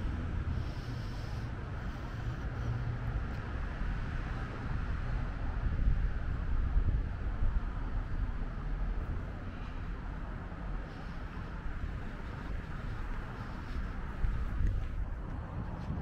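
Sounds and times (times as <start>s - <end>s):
wind gusts: 0.0s - 16.0s
low uneven rumble: 6.6s - 16.0s.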